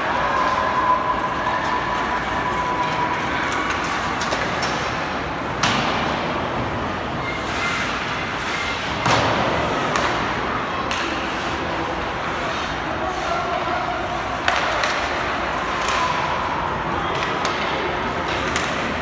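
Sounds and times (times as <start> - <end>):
hockey sticks and puck knocking: 3.4 - 6.3, 8.7 - 11.6, 14.4 - 16.4, 17.0 - 19.0.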